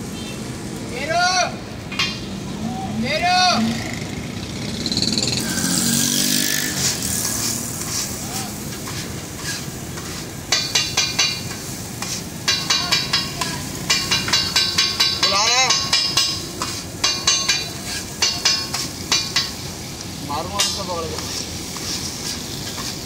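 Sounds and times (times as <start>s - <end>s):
low frying sizzle: 0.0s - 23.0s
metal spatula chopping on griddle: 5.1s - 19.7s, 20.4s - 23.0s.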